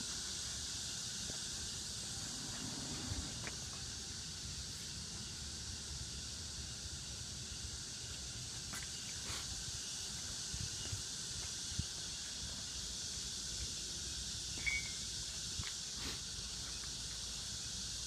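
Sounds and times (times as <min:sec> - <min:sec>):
background hiss: 0:00.0 - 0:18.0.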